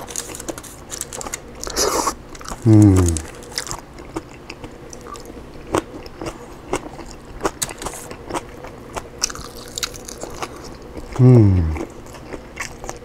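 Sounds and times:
crisp skin crunching: 0.0s - 3.8s
chewing chicken: 0.0s - 13.0s.

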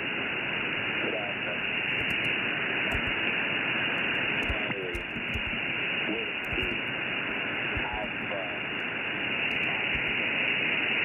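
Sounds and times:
shortwave radio static: 0.7s - 10.5s
faint voice under static: 0.9s - 1.7s.

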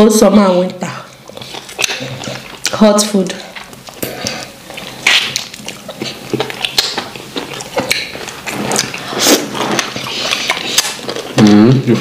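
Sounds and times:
chewing and wet mouth smacks: 1.1s - 11.6s.

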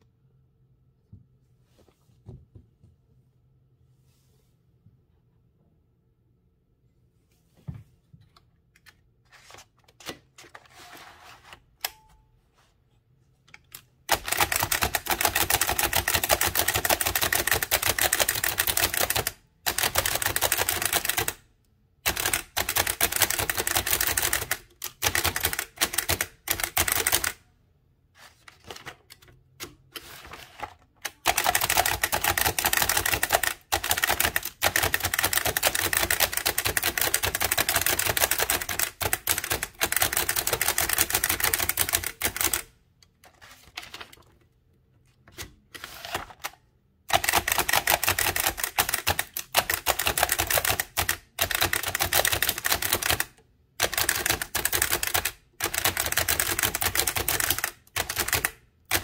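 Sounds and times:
typewriter keystrokes clattering: 14.1s - 21.4s, 22.0s - 27.4s, 31.0s - 42.7s, 47.1s - 59.0s.

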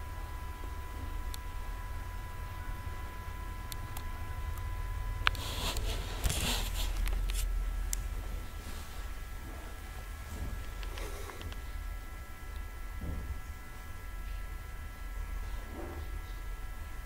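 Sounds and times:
faint steady tone: 0.0s - 6.2s
low electrical hum: 0.0s - 17.0s
rustling: 5.3s - 7.5s.

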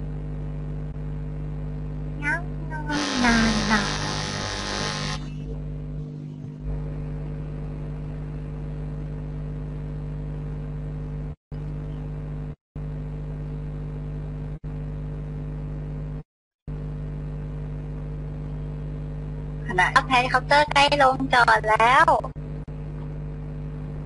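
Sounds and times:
mechanical drone: 2.2s - 6.8s.

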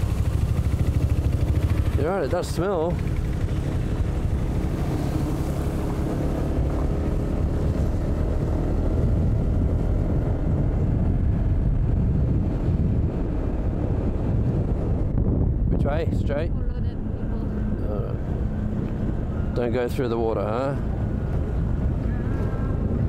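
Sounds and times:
motorbike engine running: 0.0s - 15.1s
wind rush on microphone: 0.0s - 23.0s.

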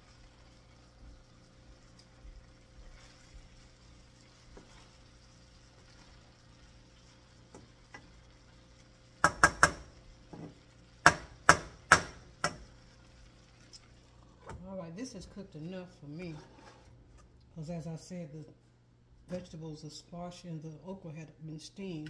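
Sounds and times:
utensil knocking against cookware: 9.2s - 9.9s.

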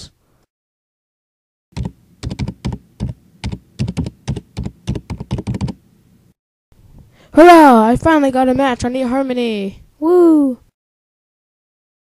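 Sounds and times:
typing on computer keyboard: 1.8s - 5.8s.

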